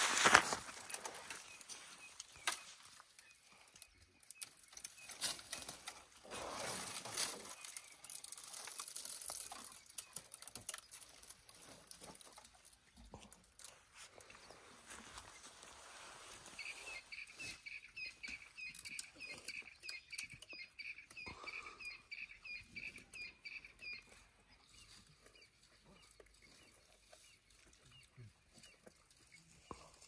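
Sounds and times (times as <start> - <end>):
leaves tearing and rustling: 0.0 - 3.0, 4.4 - 13.8
twigs snapping: 0.0 - 13.8.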